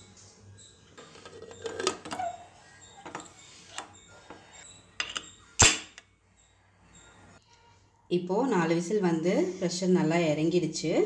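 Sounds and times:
metal lid clinks and knocks: 0:01.0 - 0:02.4, 0:03.0 - 0:03.9, 0:05.0 - 0:06.0.

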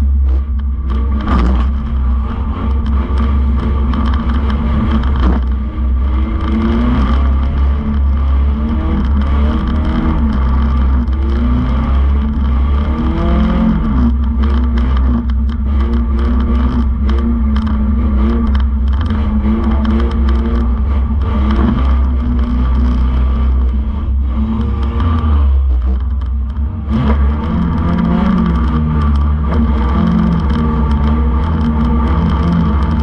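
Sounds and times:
car engine revving: 0:00.0 - 0:33.0.

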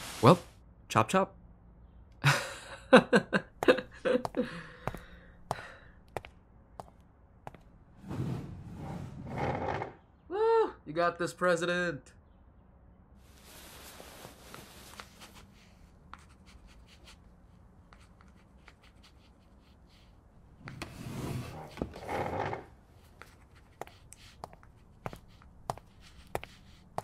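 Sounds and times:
pencil scratching on paper: 0:15.0 - 0:17.2, 0:17.9 - 0:22.0, 0:22.8 - 0:27.0.

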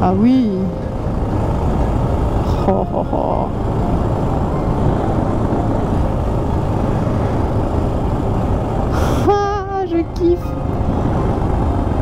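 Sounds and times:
motorcycle engine running: 0:00.0 - 0:12.0
wind noise on microphone: 0:10.4 - 0:12.0.

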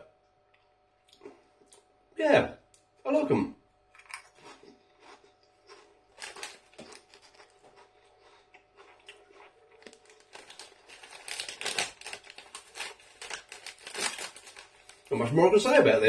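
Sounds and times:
crisps being chewed: 0:03.9 - 0:15.1
crisp packet crinkling: 0:05.7 - 0:15.4.

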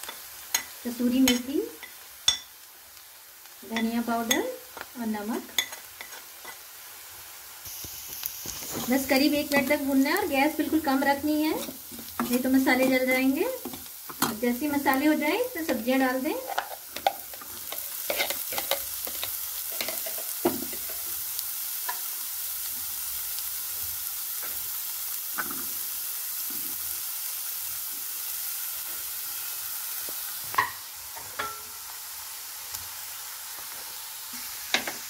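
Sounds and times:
vegetables sizzling in oil: 0:00.0 - 0:35.0
spatula scraping and tapping pan: 0:05.5 - 0:06.6, 0:10.5 - 0:14.9, 0:15.6 - 0:21.0, 0:30.1 - 0:31.7.

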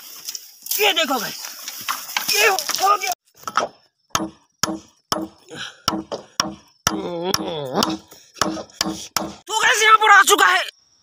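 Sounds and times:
machete chopping bamboo: 0:03.4 - 0:09.5.

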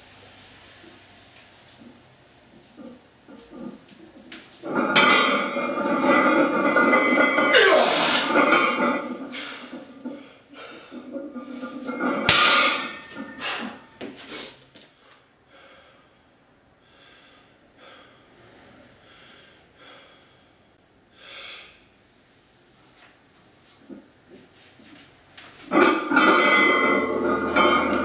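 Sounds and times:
barbell banging on floor: 0:11.9 - 0:14.2, 0:25.7 - 0:28.0
person breathing hard: 0:13.4 - 0:21.8.

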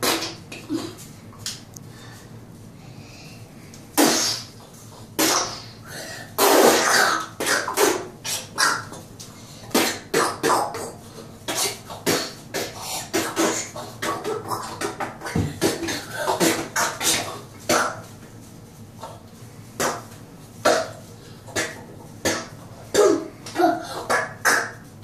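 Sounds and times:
child making mouth sound effects: 0:06.4 - 0:09.0, 0:09.7 - 0:18.1, 0:19.8 - 0:24.9.

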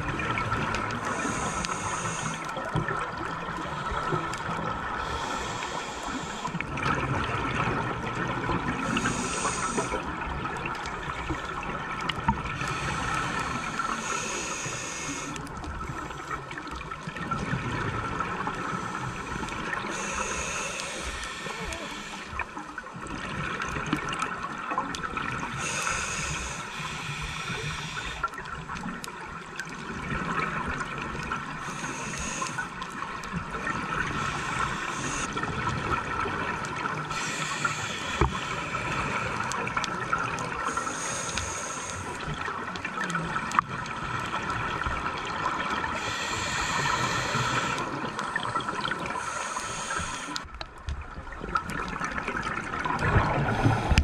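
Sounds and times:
steady underwater hiss: 0:00.0 - 0:54.0
diver breathing through regulator: 0:01.0 - 0:02.6, 0:04.9 - 0:06.7, 0:08.8 - 0:10.1, 0:12.6 - 0:15.5, 0:18.6 - 0:22.6, 0:25.5 - 0:28.4, 0:31.6 - 0:32.8, 0:33.8 - 0:35.4, 0:37.1 - 0:39.8, 0:40.6 - 0:42.4, 0:45.8 - 0:50.5, 0:53.2 - 0:54.0.

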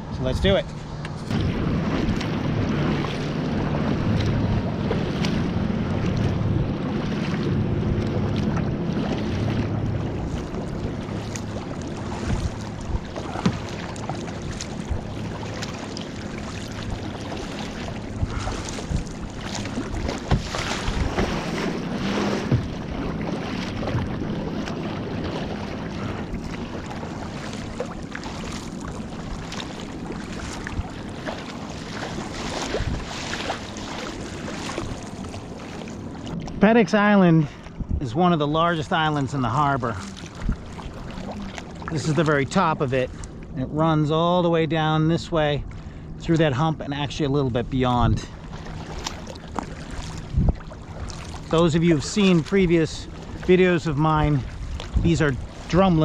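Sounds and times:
wind buffeting microphone: 0:00.0 - 0:43.6, 0:45.4 - 0:56.0
paddle strokes splashing: 0:00.0 - 0:44.1, 0:44.8 - 0:56.0
motorboat engine drone: 0:00.0 - 0:56.0
sharp splashes and knocks: 0:01.0 - 0:36.6, 0:48.1 - 0:56.0.

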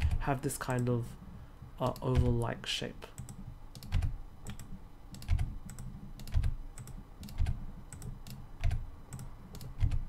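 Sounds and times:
keyboard and mouse clicks: 0:01.8 - 0:02.5, 0:03.2 - 0:10.0.

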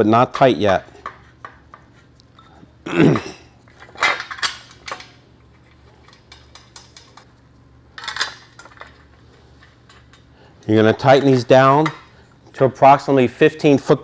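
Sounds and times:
metal parts clinking and rattling: 0:03.7 - 0:07.3, 0:08.0 - 0:10.2.

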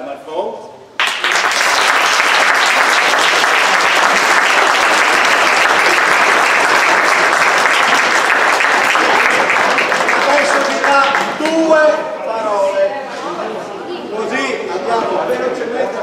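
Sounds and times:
crowd applauding: 0:01.0 - 0:11.8.

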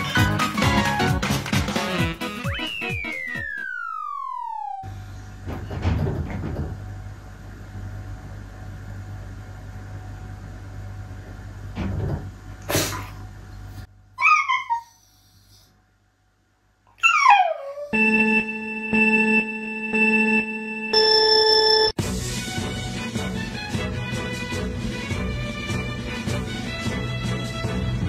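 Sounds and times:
dog whining: 0:14.2 - 0:15.7, 0:16.9 - 0:18.0
steady electronic tone: 0:18.0 - 0:22.0.

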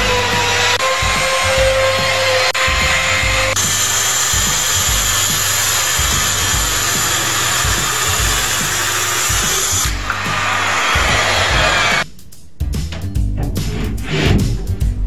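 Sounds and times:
circular saw cutting wood: 0:00.0 - 0:12.0
router whine: 0:00.0 - 0:12.0
background music with low beat: 0:00.0 - 0:15.0.

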